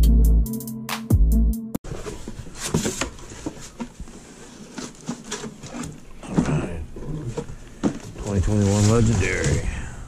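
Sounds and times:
cardboard rustling and scraping: 0:01.8 - 0:09.8.

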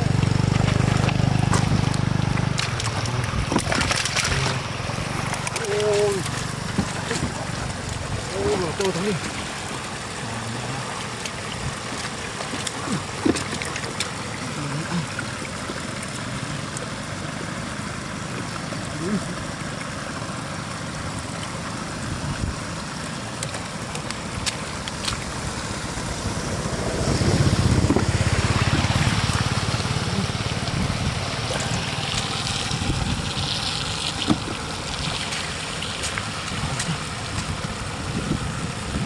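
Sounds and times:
water splashing: 0:00.0 - 0:39.0
steady low rumble: 0:23.8 - 0:39.0.

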